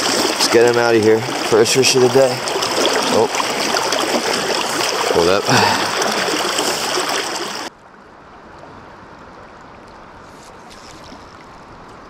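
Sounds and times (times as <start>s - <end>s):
creek water rushing: 0.0s - 7.7s
steady flow of water: 0.0s - 12.0s.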